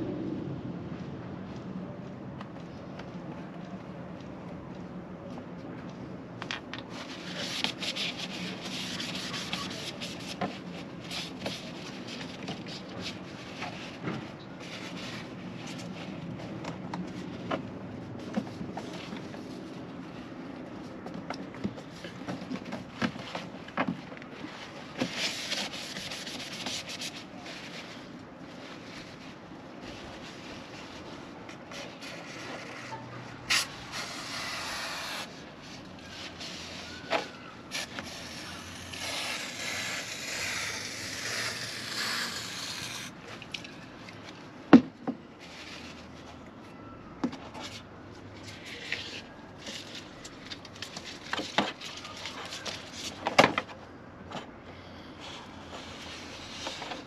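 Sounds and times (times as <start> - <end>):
hands scraping rubber trim: 6.9 - 14.0, 25.0 - 27.9, 29.9 - 43.7.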